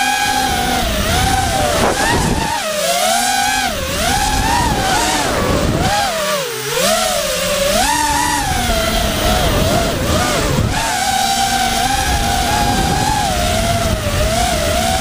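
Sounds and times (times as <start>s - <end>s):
wind rumble on microphone: 0.0s - 2.6s, 3.5s - 15.0s
quadcopter motors whining: 0.0s - 15.0s.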